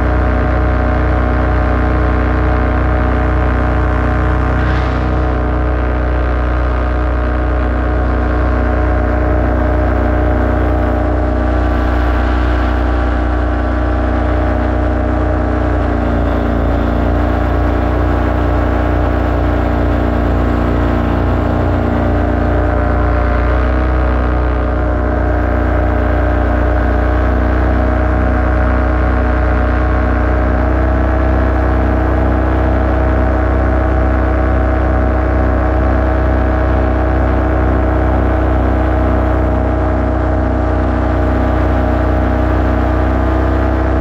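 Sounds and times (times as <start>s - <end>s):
paramotor engine droning: 0.0s - 44.0s.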